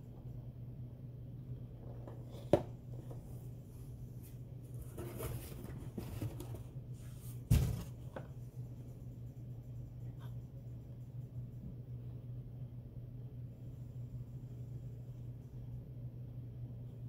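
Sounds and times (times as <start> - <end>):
low hum: 0.0 - 17.0
cardboard scraping and rustling: 4.7 - 8.1
box set down on table: 7.5 - 8.0.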